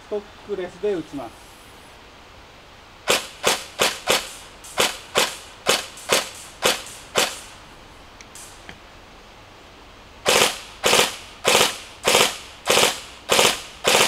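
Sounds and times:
airsoft gun shots: 0:03.1 - 0:07.6, 0:10.2 - 0:14.0.

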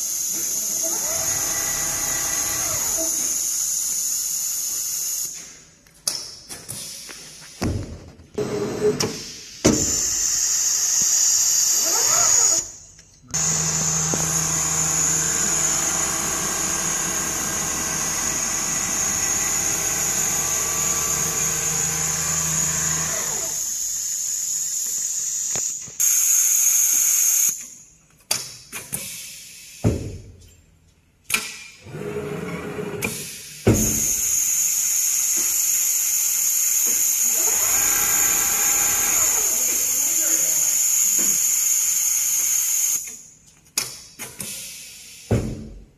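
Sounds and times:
sewing machine whine and hum: 0:00.0 - 0:05.3, 0:13.4 - 0:27.5, 0:31.8 - 0:33.2, 0:33.8 - 0:43.0.

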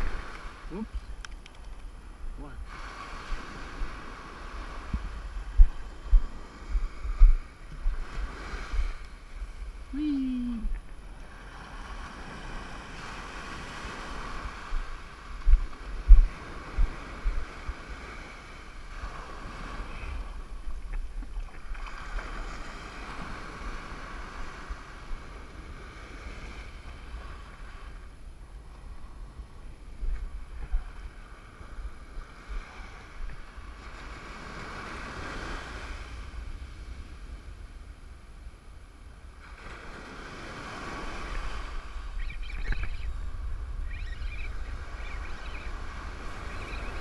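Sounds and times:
wind buffeting microphone: 0:00.0 - 0:38.3, 0:39.1 - 0:47.0
surf breaking on beach: 0:39.3 - 0:47.0.

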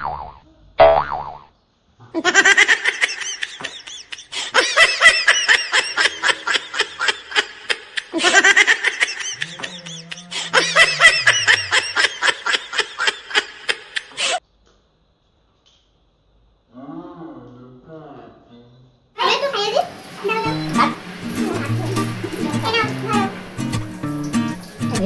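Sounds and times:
high-pitched giggles: 0:02.2 - 0:14.4.

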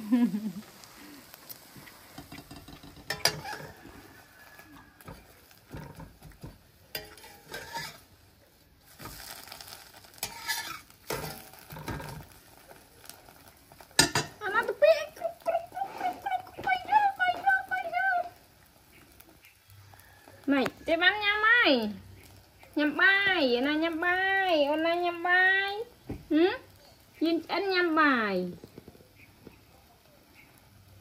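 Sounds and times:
egg sizzling in hot oil: 0:00.0 - 0:31.0
metal spatula scraping wok: 0:01.6 - 0:08.3, 0:08.9 - 0:12.4
spatula clinking on pan: 0:02.2 - 0:03.8, 0:05.0 - 0:08.0, 0:14.0 - 0:14.4.

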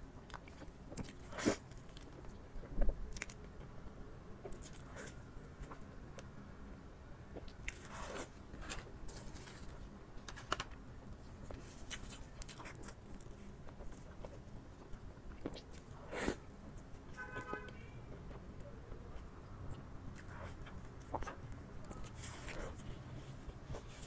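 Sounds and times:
chewing soft food: 0:00.2 - 0:03.7, 0:11.1 - 0:17.2, 0:18.2 - 0:24.0.

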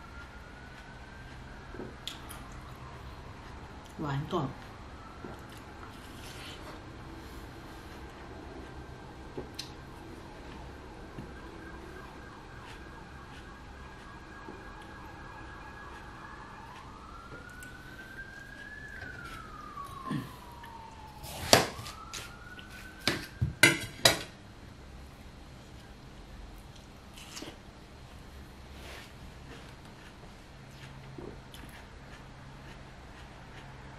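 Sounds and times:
emergency vehicle siren wailing: 0:00.0 - 0:24.2.

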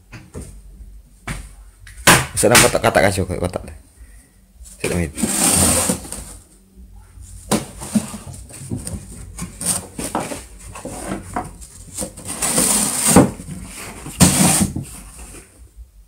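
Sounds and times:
cardboard box rustling and tearing: 0:05.2 - 0:06.4, 0:07.5 - 0:15.1.

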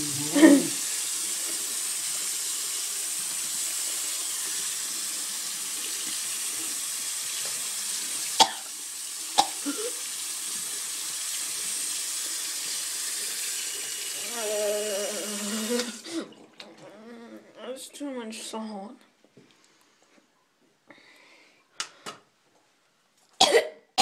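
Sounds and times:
tap water running: 0:00.0 - 0:16.8.

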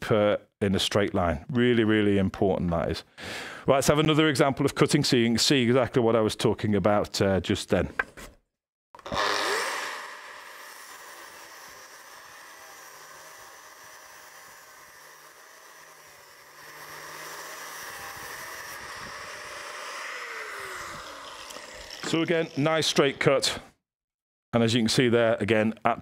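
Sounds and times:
grinder disc spinning down: 0:09.0 - 0:23.3
angle grinder cutting steel: 0:09.0 - 0:23.4.

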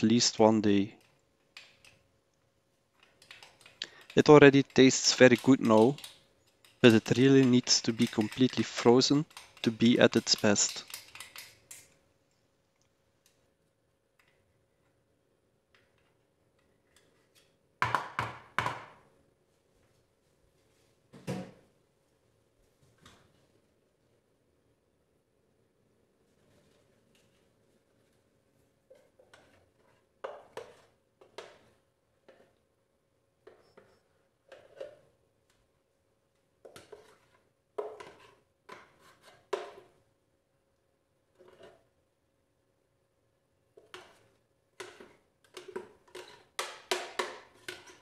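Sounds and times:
spoon scraping plastic pitcher: 0:03.0 - 0:11.6, 0:28.9 - 0:32.6, 0:36.7 - 0:40.0, 0:41.3 - 0:41.9, 0:43.8 - 0:48.0.

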